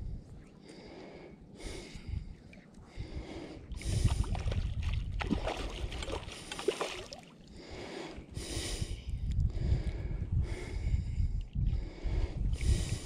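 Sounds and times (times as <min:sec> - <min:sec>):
fish thrashing and splashing water: 0:04.2 - 0:07.4.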